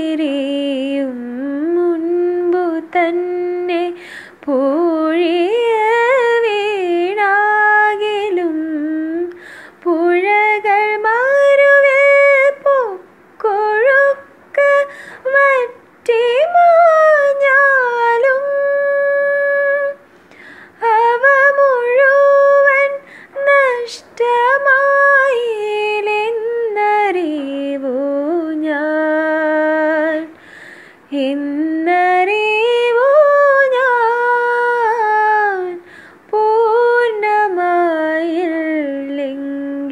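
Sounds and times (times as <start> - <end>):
woman singing solo: 20.7 - 30.4.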